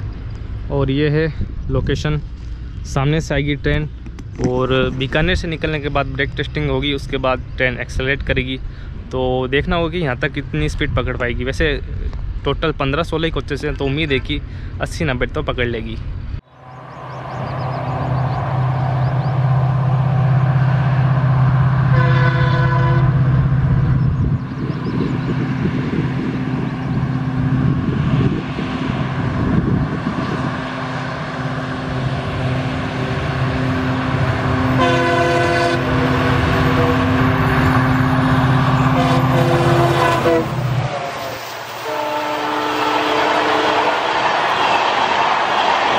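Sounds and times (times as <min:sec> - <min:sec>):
locomotive engine drone: 0:00.0 - 0:44.6
locomotive horn: 0:21.7 - 0:23.8, 0:33.4 - 0:44.4.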